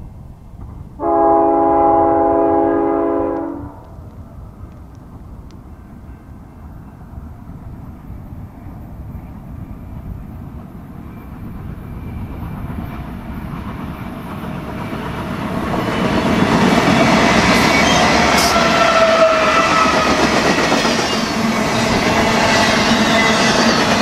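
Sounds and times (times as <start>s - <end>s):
diesel locomotives rumbling past: 0.0s - 24.0s
train wheels clattering on rails: 4.6s - 24.0s.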